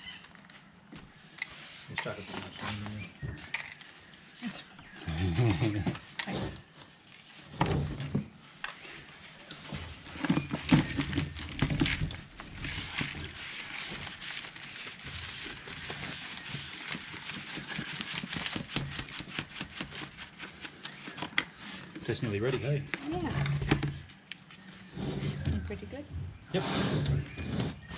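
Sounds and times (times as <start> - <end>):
soil worked by hand in bucket: 5.0 - 27.9.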